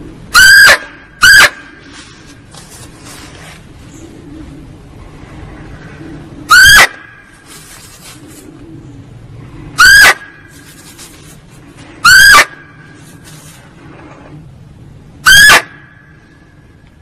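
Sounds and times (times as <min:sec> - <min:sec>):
steady background hiss: 0:00.0 - 0:17.0
deer lure call barks: 0:06.5 - 0:07.0, 0:09.8 - 0:10.6, 0:12.0 - 0:12.7, 0:15.2 - 0:15.8.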